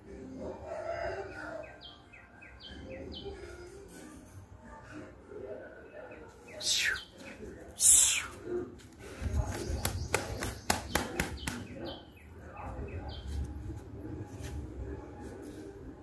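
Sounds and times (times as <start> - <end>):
small birds chirping: 6.0 - 13.6
rooster flapping its wings: 9.4 - 11.6.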